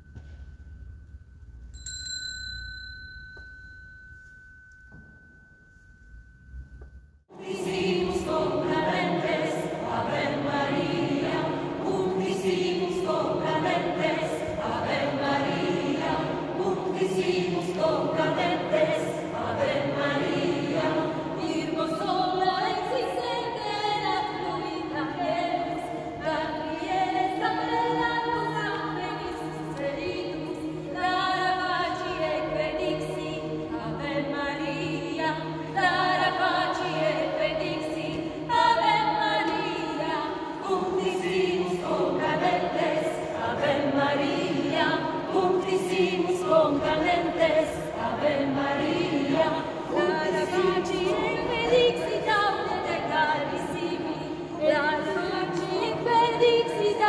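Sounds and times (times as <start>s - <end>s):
struck bell tone ringing: 0.0s - 7.2s
mixed choir singing: 7.3s - 57.0s.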